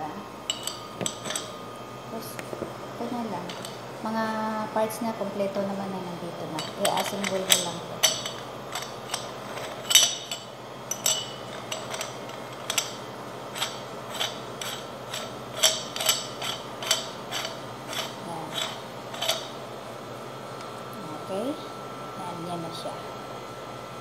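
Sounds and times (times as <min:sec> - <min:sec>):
metal parts clinking: 0:00.5 - 0:01.5, 0:06.6 - 0:13.0, 0:13.6 - 0:19.5.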